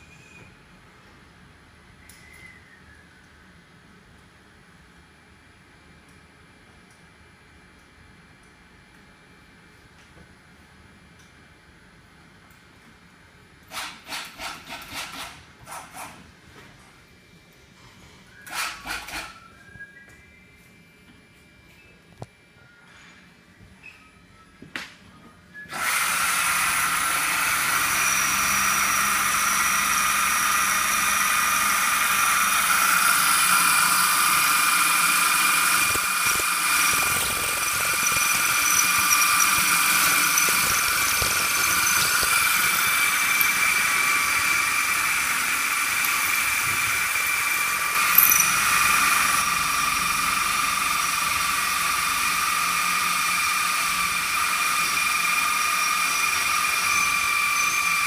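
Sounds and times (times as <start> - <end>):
motor drilling into metal bar: 25.7 - 58.0.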